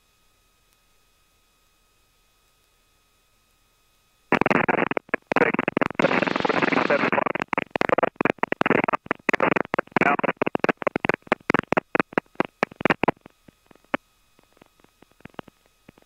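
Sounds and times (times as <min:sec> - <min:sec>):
faint electrical hum: 0:00.0 - 0:16.0
crackling headset audio: 0:04.3 - 0:16.0.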